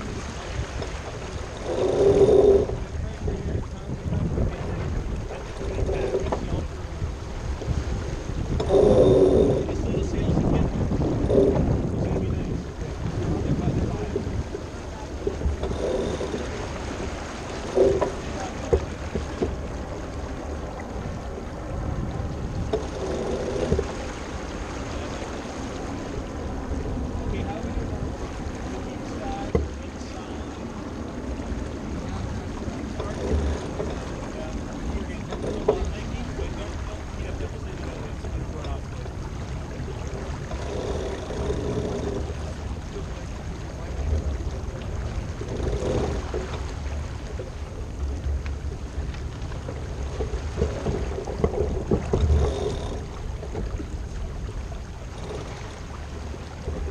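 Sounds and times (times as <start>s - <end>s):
wind noise on microphone: 0.0s - 19.8s, 20.6s - 25.0s
water splashing along boat hull: 0.0s - 56.9s
wind rumble on microphone: 0.0s - 56.9s.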